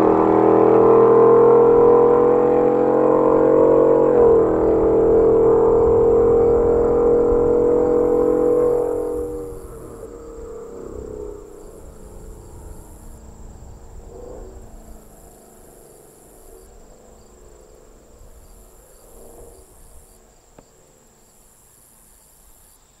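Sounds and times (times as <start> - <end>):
truck engine driving away: 0.0 - 14.7
insects buzzing: 1.5 - 23.0.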